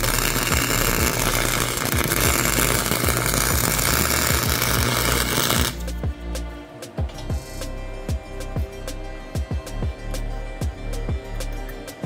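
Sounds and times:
welder arc crackling: 0:00.0 - 0:05.9.

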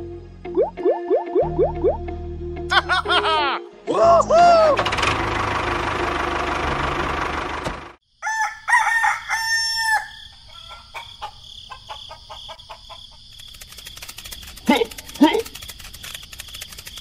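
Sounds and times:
tractor engine running: 0:04.6 - 0:08.0, 0:13.4 - 0:17.0
rooster crowing: 0:08.2 - 0:13.1
chicken clucking: 0:10.3 - 0:13.4.

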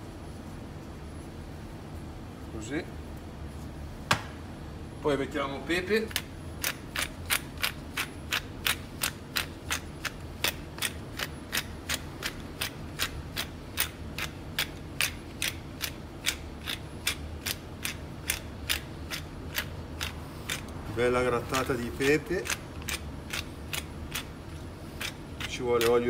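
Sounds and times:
pepper mill grinding clicks: 0:06.1 - 0:20.8, 0:21.6 - 0:24.3, 0:25.0 - 0:26.0.

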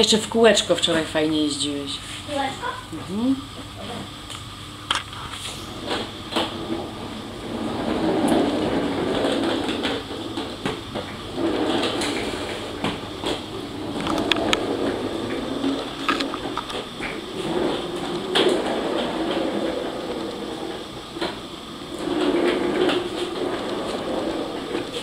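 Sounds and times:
plastic wheels rolling on wood floor: 0:05.7 - 0:25.0.

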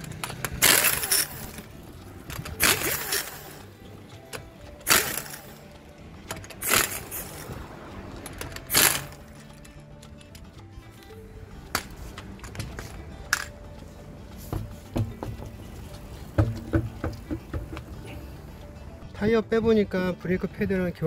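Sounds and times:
air impact wrench bursts: 0:00.0 - 0:03.7, 0:04.8 - 0:05.6, 0:06.3 - 0:07.6, 0:08.2 - 0:09.4.

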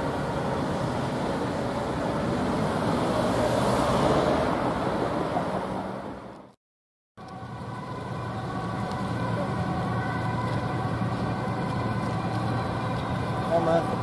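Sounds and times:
road traffic: 0:00.0 - 0:06.6, 0:07.2 - 0:14.0
ambulance siren: 0:07.2 - 0:14.0.

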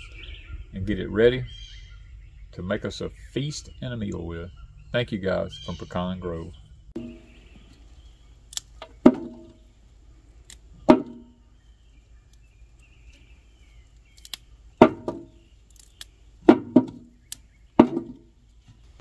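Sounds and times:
sharp clicks: 0:08.4 - 0:08.9, 0:14.0 - 0:14.5, 0:15.7 - 0:16.2, 0:17.2 - 0:17.5.

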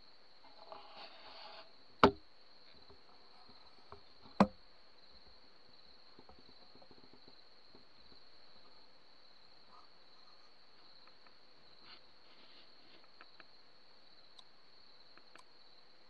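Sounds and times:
crickets chirring: 0:00.0 - 0:16.0
faint rustle: 0:06.0 - 0:13.5.

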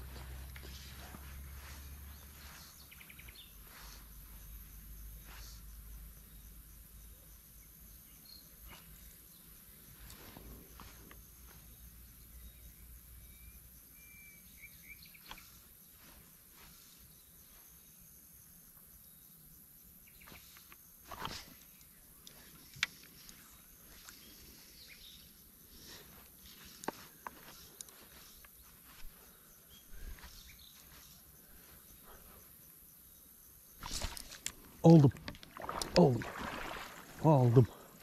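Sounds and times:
insect trill: 0:00.0 - 0:38.0
bird chirps: 0:01.5 - 0:04.0, 0:12.2 - 0:15.6.

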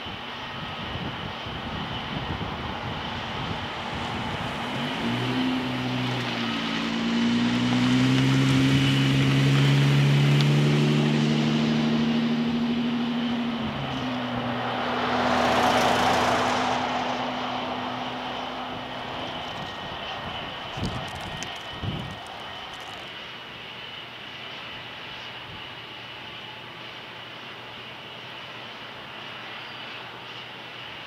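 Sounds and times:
low engine drone: 0:00.0 - 0:31.0
broad rushing sound: 0:01.0 - 0:23.2.

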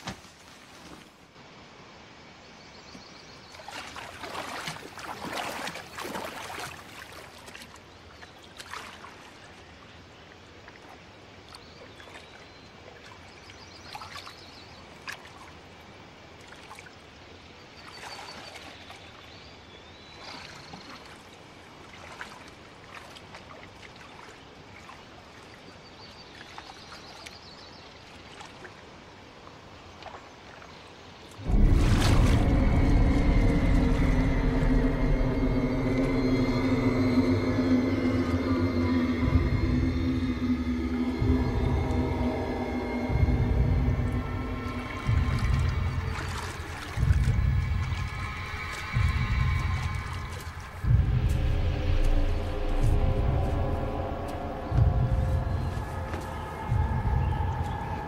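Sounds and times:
water splashing from swimming: 0:03.6 - 0:09.9, 0:20.0 - 0:29.2, 0:43.7 - 0:53.0.

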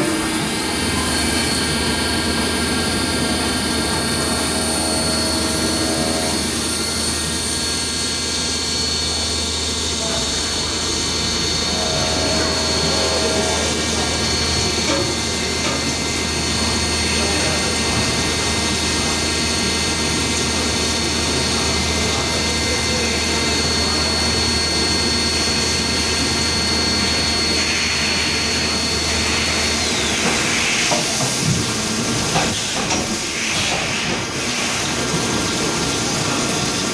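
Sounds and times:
low machine hum: 0:00.0 - 0:30.8
milling machine high whine: 0:00.0 - 0:36.9.

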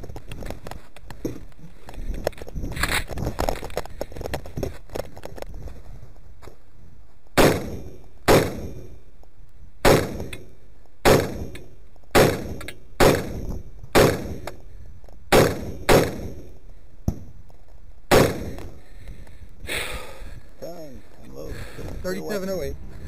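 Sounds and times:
rifle shots with echo: 0:07.4 - 0:09.0, 0:09.8 - 0:14.6, 0:15.3 - 0:16.6, 0:18.1 - 0:18.8.

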